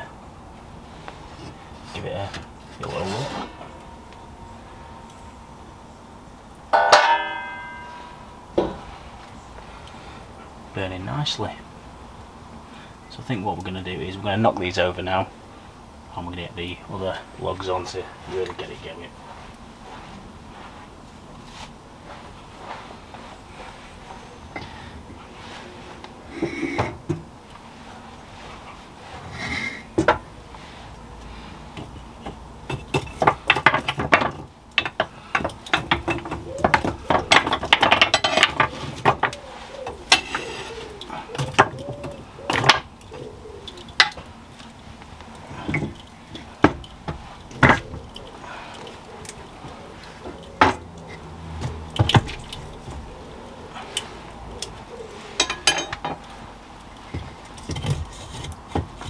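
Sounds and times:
wood and metal clattering: 0:01.2 - 0:03.9, 0:06.7 - 0:08.9, 0:28.6 - 0:30.4, 0:31.3 - 0:54.0, 0:54.6 - 0:59.0.

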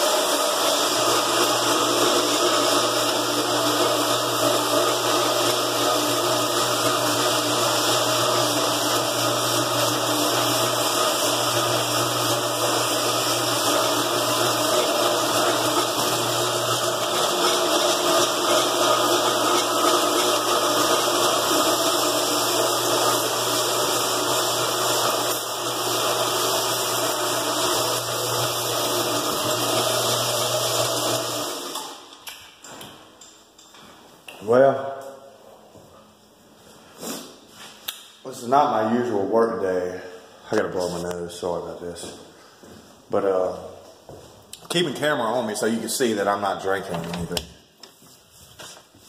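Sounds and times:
electric floor buffer running: 0:00.0 - 0:32.1.

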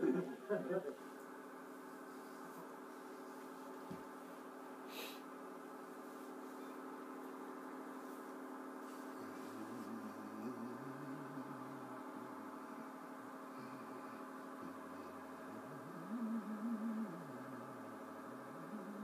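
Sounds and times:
faint humming drone: 0:00.0 - 0:19.0
low wavering tone: 0:15.5 - 0:19.0.

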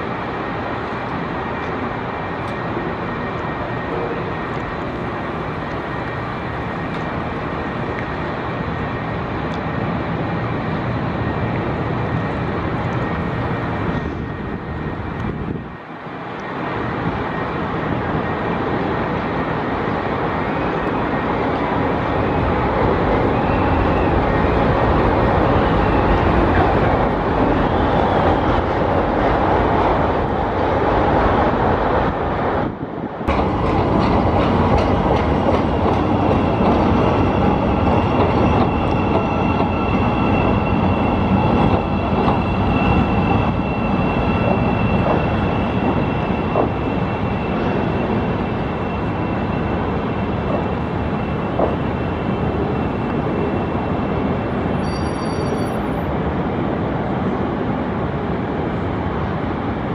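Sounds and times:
train wheels rumbling on rail: 0:00.0 - 0:59.9
faint wavering squeal: 0:36.4 - 0:56.2.

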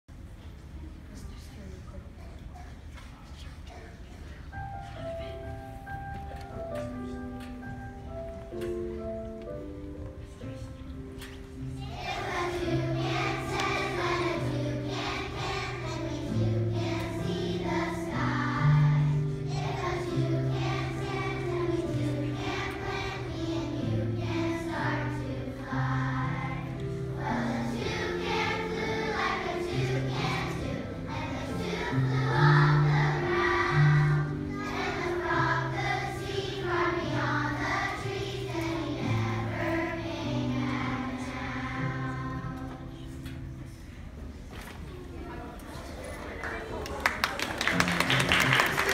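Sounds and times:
children singing together: 0:11.8 - 0:43.2.

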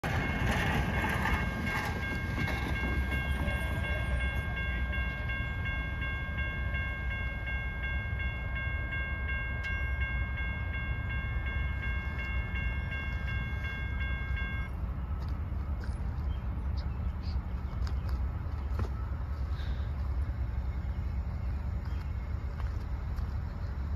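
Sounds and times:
crossing bell electronic ding: 0:00.0 - 0:14.8.

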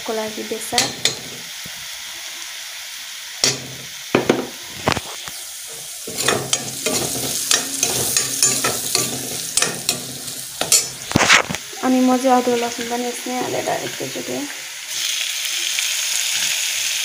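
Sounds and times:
oil sizzling: 0:00.0 - 0:17.0
metal ladle scraping pan: 0:00.8 - 0:01.5, 0:03.4 - 0:11.6.

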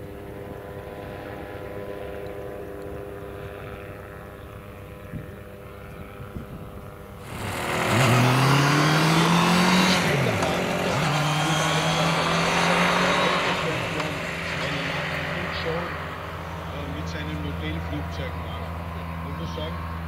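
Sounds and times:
light aircraft engine and propeller: 0:00.0 - 0:20.0.

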